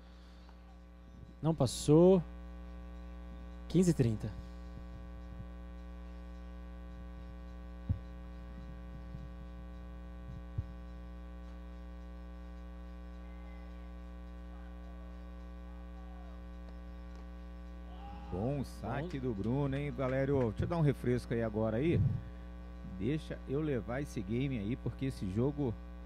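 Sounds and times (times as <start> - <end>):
electrical mains hum: 0.0 - 26.0
low thumps: 21.9 - 22.3.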